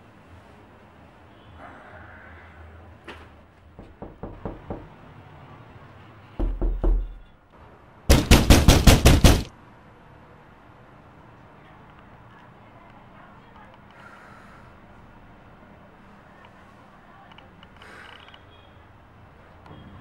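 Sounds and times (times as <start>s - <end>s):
rapid loud knocking: 3.8s - 5.0s, 8.1s - 9.5s.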